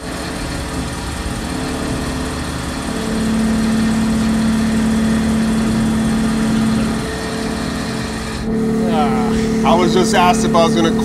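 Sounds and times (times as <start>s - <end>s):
milling machine cutting metal: 0.0s - 11.0s.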